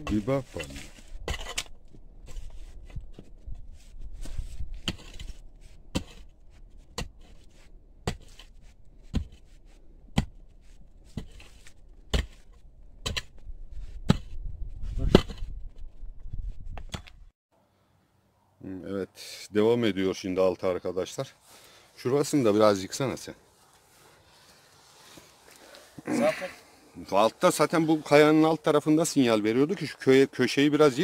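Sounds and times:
hand tool striking stone: 4.8 - 6.3, 8.0 - 8.5, 9.1 - 9.5, 10.1 - 10.5, 11.1 - 13.4, 14.1 - 14.4, 15.0 - 15.5.

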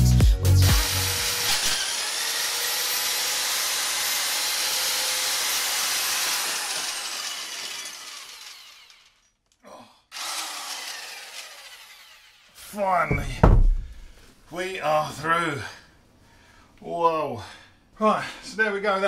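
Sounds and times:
core drill whining: 0.6 - 9.3, 10.2 - 14.1.

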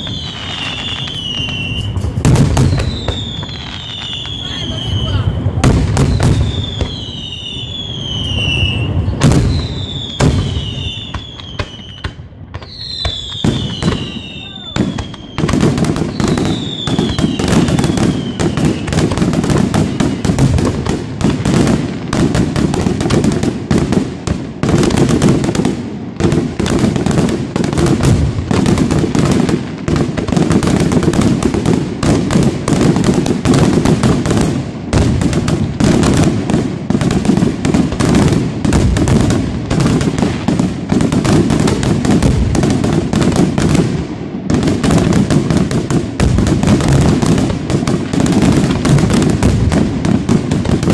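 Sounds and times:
falling firework whistle: 0.0 - 20.3
fireworks bursting: 0.0 - 50.9.

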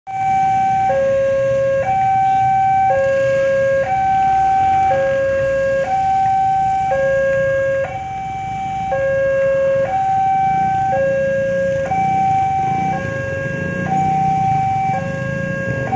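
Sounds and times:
level crossing two-tone alarm: 0.1 - 15.9.

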